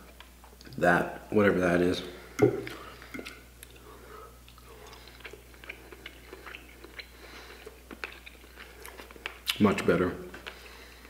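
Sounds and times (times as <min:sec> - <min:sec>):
person chewing food: 0:02.3 - 0:09.6, 0:10.3 - 0:11.0.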